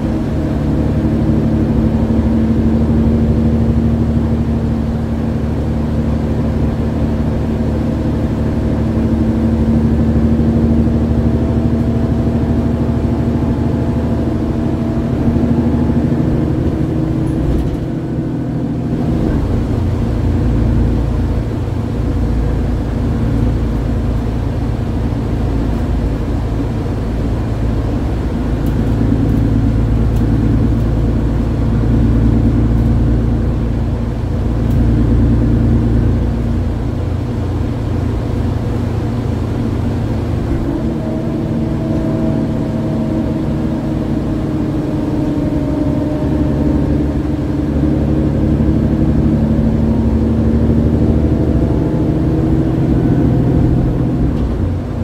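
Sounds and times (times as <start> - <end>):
bus diesel engine running: 0.0 - 55.0.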